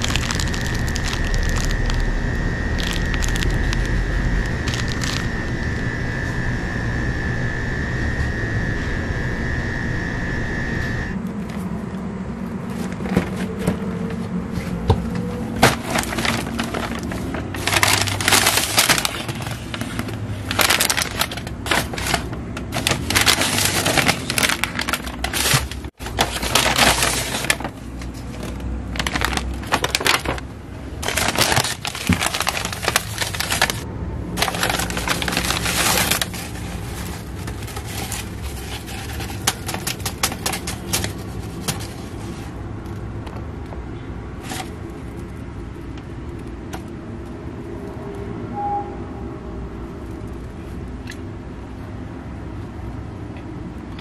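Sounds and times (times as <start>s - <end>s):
paper bags rustling and crinkling: 0.0s - 5.4s, 12.7s - 46.9s.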